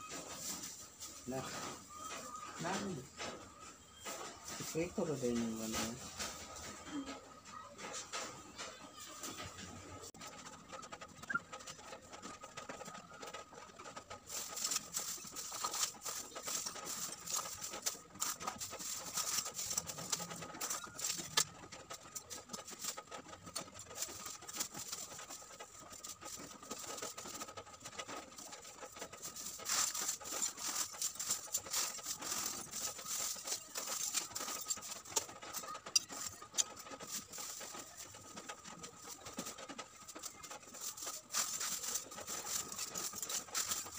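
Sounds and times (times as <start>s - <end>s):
plastic bag crinkling: 10.2s - 43.9s
charcoal lumps clinking: 14.1s - 43.9s.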